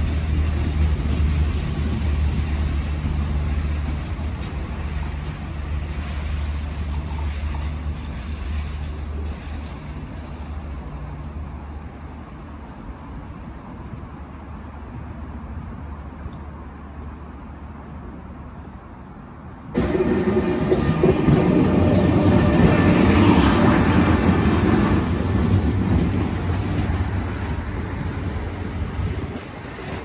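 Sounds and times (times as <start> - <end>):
train wheels clattering on track: 0.0 - 11.1, 19.7 - 30.0
high-speed train passing: 0.0 - 30.0.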